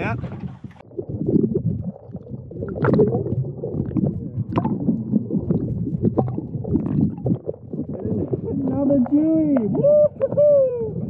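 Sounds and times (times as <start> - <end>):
underwater water rushing: 0.0 - 11.0.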